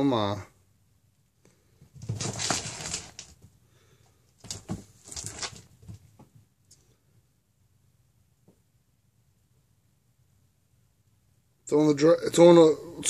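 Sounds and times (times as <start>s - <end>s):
cat paws scrabbling on hard floor: 1.8s - 3.6s, 4.4s - 6.5s
faint taps: 8.4s - 8.7s.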